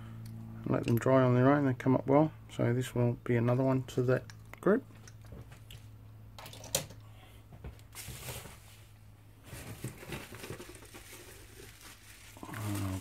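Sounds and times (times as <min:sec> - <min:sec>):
bubble wrap crinkling: 0:09.4 - 0:13.0.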